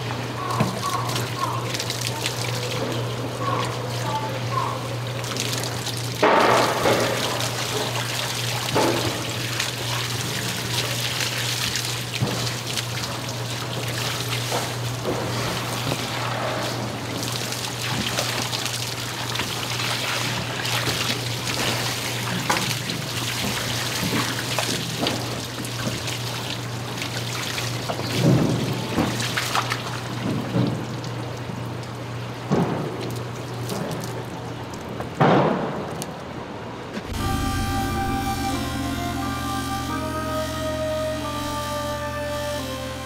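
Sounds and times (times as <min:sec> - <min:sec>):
running water splashing: 0:00.0 - 0:31.4
low hum: 0:37.0 - 0:43.0.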